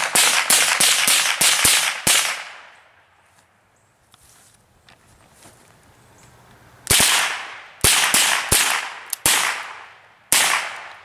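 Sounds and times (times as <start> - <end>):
rifle shots with echo: 0.0 - 2.8, 6.9 - 11.0.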